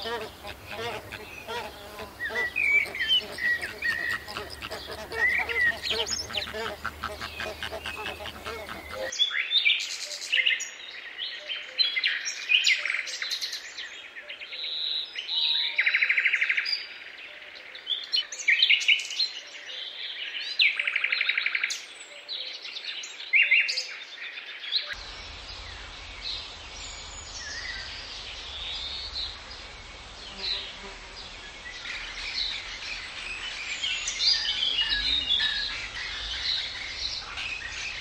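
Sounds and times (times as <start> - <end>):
parrot harsh rasping calls: 0.0 - 9.1.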